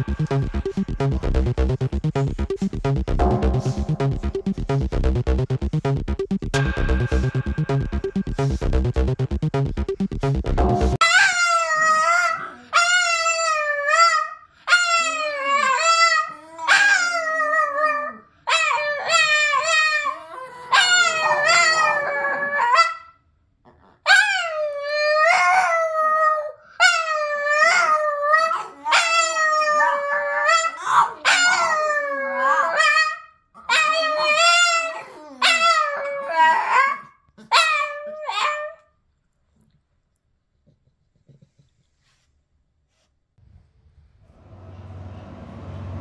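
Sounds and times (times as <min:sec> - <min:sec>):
dog howling: 0:11.0 - 0:23.0, 0:24.1 - 0:38.8.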